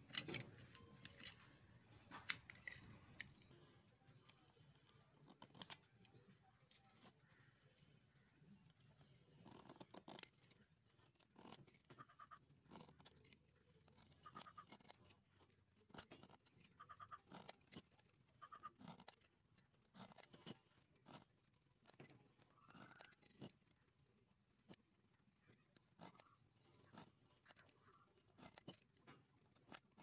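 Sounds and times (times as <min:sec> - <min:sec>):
scriber scraping along steel: 0:00.0 - 0:03.7.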